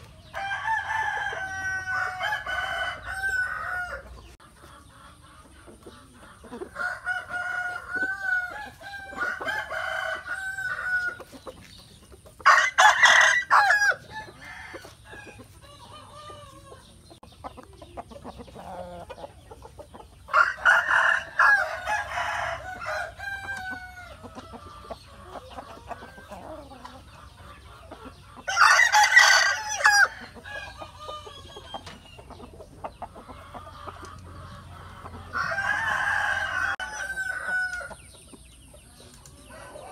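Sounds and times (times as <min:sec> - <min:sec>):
chickens clucking: 0:00.0 - 0:39.9
rooster crowing: 0:00.4 - 0:04.1, 0:06.8 - 0:11.2, 0:12.4 - 0:16.6, 0:20.3 - 0:24.2, 0:28.5 - 0:31.4, 0:35.3 - 0:38.0.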